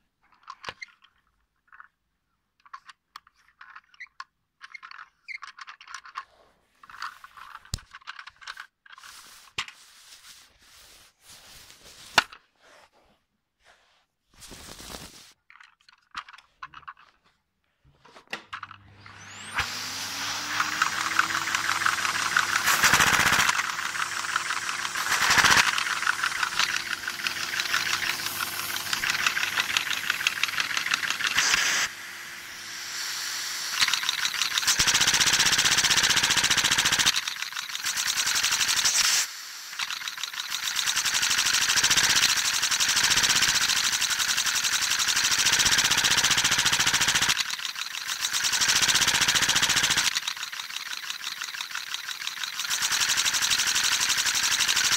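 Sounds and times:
toy engine clattering: 0.2s - 9.6s, 15.5s - 17.2s, 18.5s - 54.9s.

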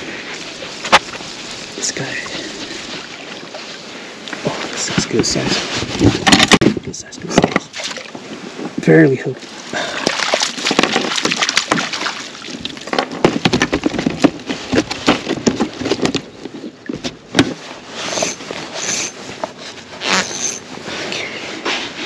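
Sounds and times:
knocks and clatter of handling: 4.9s - 7.8s, 10.0s - 17.7s
fish splashing in a net: 7.7s - 8.1s, 9.5s - 12.8s.

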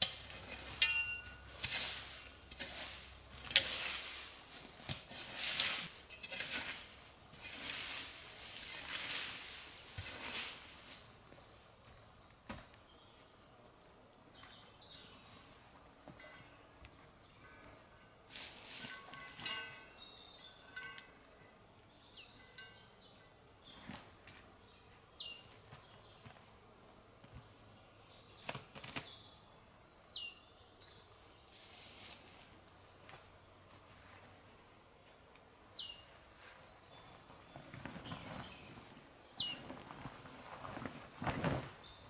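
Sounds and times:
small birds calling: 19.5s - 26.3s, 35.0s - 40.0s.

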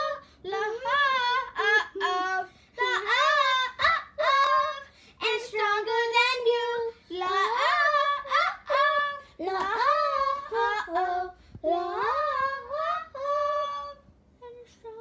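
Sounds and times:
girl singing unaccompanied: 0.0s - 15.0s.

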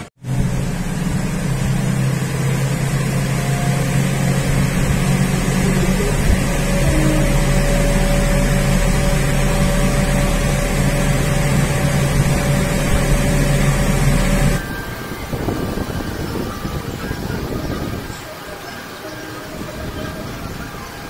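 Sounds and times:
machine hum with high whine: 0.0s - 21.0s
windy open-air noise: 0.0s - 21.0s.

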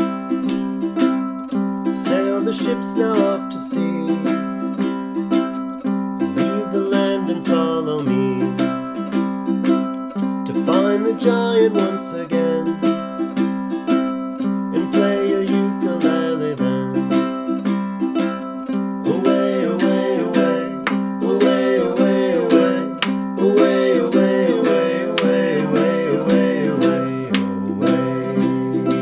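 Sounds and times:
ukulele strumming: 0.0s - 29.0s
man singing: 1.9s - 4.5s, 6.3s - 9.0s, 10.5s - 13.0s, 14.7s - 17.3s, 19.0s - 29.0s.

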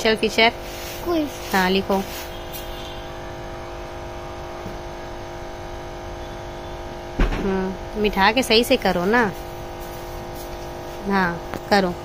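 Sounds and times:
appliance motor hum: 0.0s - 12.0s
person speaking: 0.9s - 2.2s
low thump: 7.2s - 7.6s.

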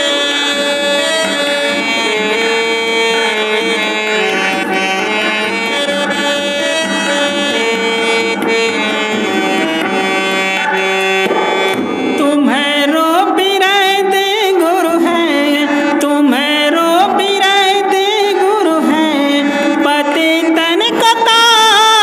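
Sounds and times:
wavering sliding melody: 0.0s - 12.6s
harmonium melody: 0.0s - 22.0s
tabla drumming: 0.0s - 22.0s.

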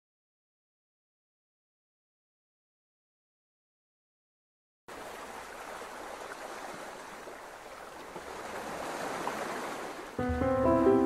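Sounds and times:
surf on a pebble beach: 4.9s - 11.0s.

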